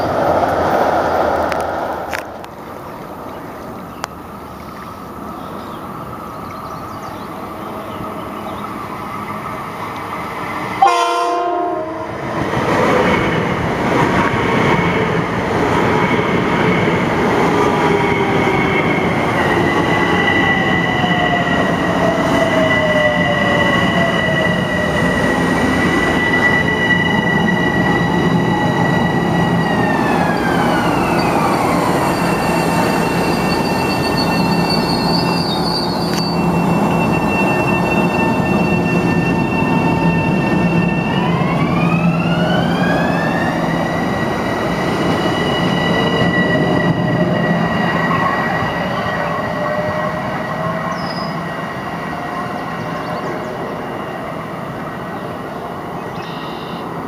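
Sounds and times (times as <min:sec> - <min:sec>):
electric train traction whine: 0:00.0 - 0:55.7.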